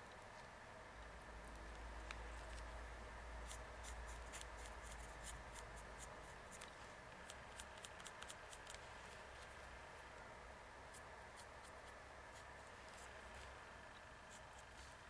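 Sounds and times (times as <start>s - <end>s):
paint pen ticking and scratching: 3.4s - 9.7s, 10.9s - 15.0s.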